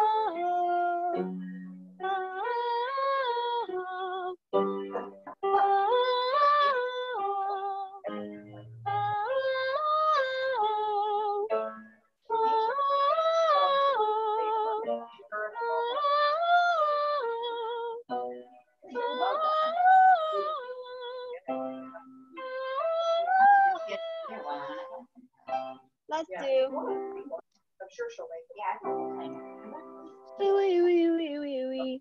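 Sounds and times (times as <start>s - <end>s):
girl singing vocal warm-up: 0.0s - 4.4s, 5.4s - 11.6s, 12.3s - 18.1s, 18.9s - 25.0s, 30.4s - 32.0s.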